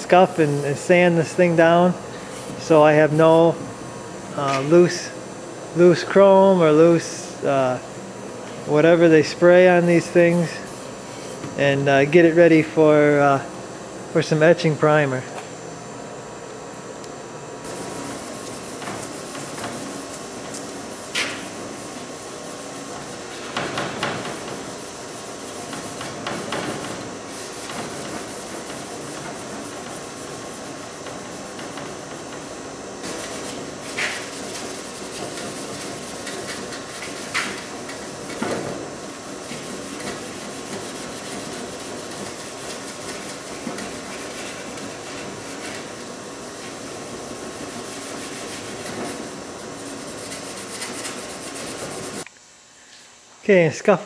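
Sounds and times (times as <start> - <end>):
scouring pad rubbing metal: 33.1 - 38.0, 39.4 - 46.0, 47.6 - 52.2.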